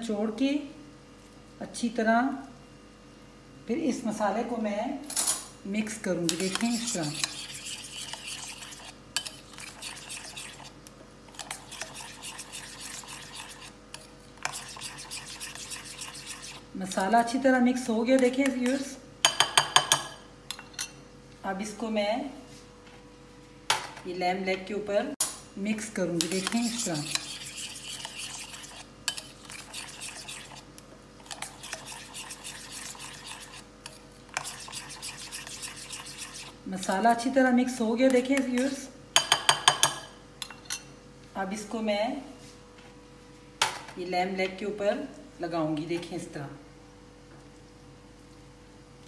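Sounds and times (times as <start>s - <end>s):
faint steady hum: 0.0s - 49.0s
spoon scraping glass bowl: 6.3s - 17.1s, 26.2s - 36.6s.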